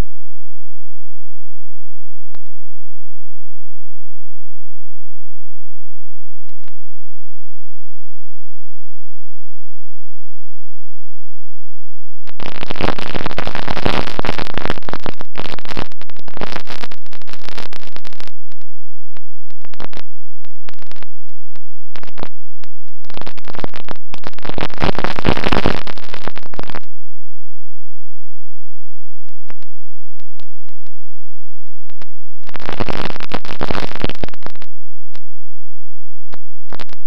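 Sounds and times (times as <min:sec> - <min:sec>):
short crackles: 0:12.3 - 0:26.9, 0:29.3 - 0:31.0, 0:31.6 - 0:35.3
wind rushing over microphone: 0:12.3 - 0:27.1.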